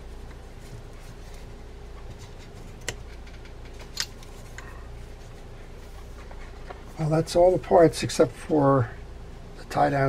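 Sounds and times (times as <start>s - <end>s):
low steady hum: 0.0s - 10.0s
sharp clicks of metal parts: 2.8s - 4.3s.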